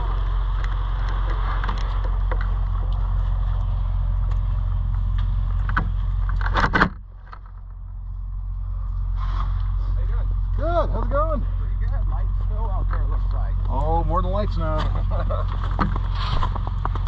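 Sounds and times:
snowmobile engine idling: 7.2 - 17.0
handling clicks and scrapes: 14.6 - 17.0.

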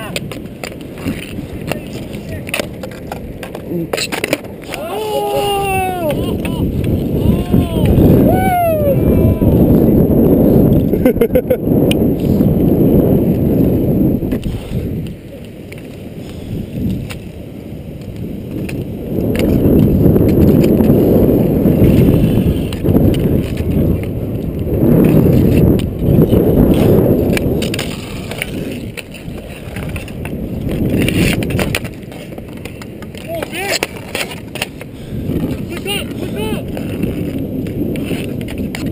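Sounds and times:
hockey sticks and puck clacking: 0.0 - 7.0, 16.8 - 17.4, 18.0 - 21.0, 22.7 - 38.9
skate wheels rolling on asphalt: 0.0 - 38.9.

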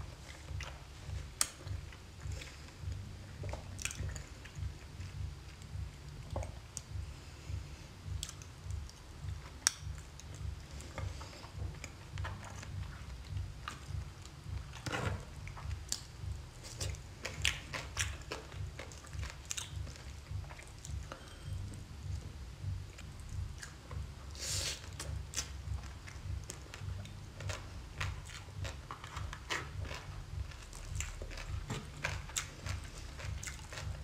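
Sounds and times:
wet squishing sound: 0.0 - 7.0
chewing with wet mouth clicks: 0.2 - 7.0, 8.0 - 22.2, 23.0 - 24.1, 24.7 - 34.0.

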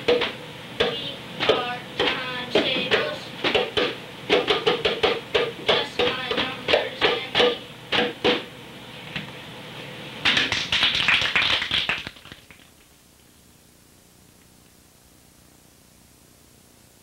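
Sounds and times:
hand drums struck by hand: 0.0 - 8.4.

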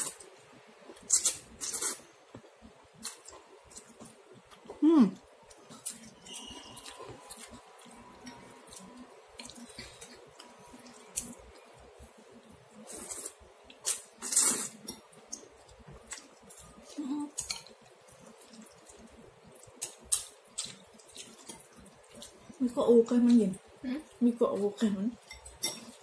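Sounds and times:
noodles squishing and dripping: 5.5 - 23.6.

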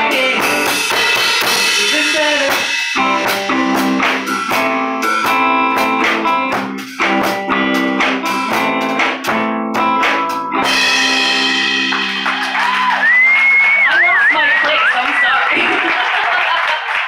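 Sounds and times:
electric guitar strumming chords: 0.0 - 12.7
drums: 0.0 - 17.0.

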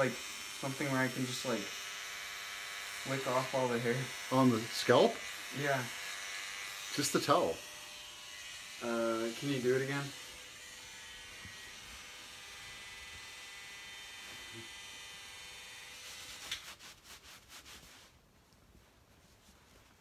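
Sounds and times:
electric hair clippers buzzing: 0.0 - 16.6
towel rubbing on scalp: 15.9 - 20.0.

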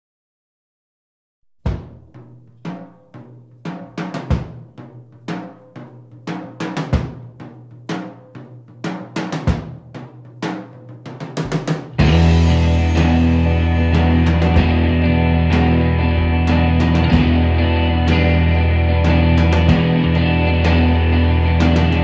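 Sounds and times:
snare or tom hits: 1.6 - 13.4
quick drum fill: 1.6 - 15.9
kick drum hits: 1.7 - 2.1, 4.3 - 4.6.

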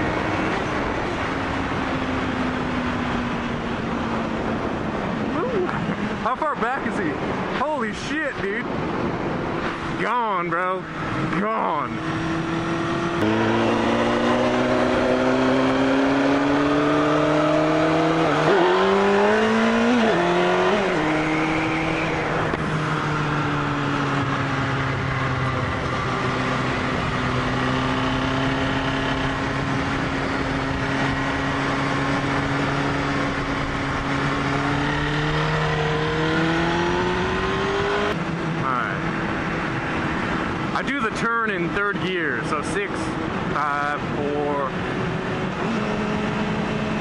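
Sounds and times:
motorcycle engine running at speed: 0.0 - 6.3, 8.7 - 47.0
wind rushing: 0.0 - 10.1.

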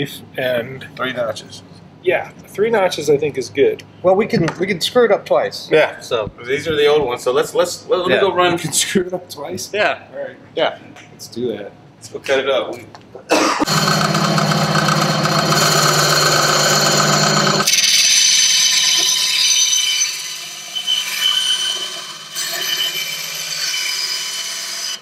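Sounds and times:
motor hum: 13.6 - 19.1
bandsaw cutting plastic: 13.6 - 25.0.

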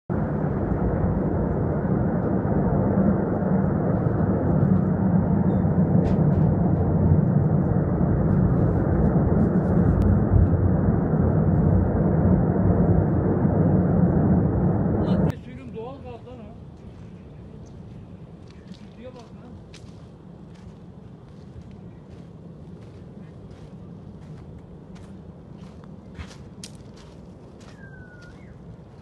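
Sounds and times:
deep roar of gas fire: 0.1 - 15.4.

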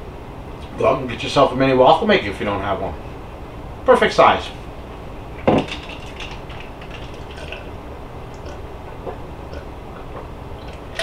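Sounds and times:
low room hum: 0.0 - 11.0
person sipping and swallowing: 7.0 - 11.0.

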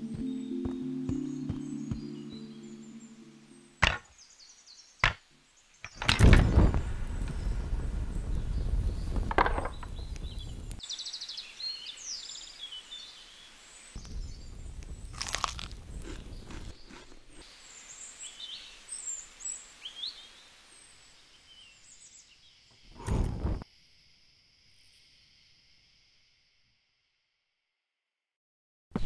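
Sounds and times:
fire crackling: 5.8 - 10.8, 14.0 - 17.4, 22.9 - 23.6.

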